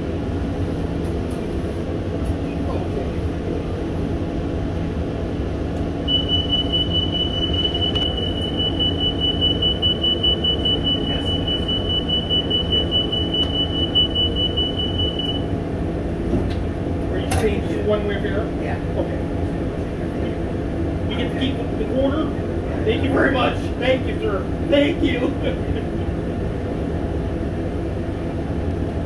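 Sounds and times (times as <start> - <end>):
low rumble of bus: 0.0 - 29.0
high electronic warning beeper: 6.1 - 15.5.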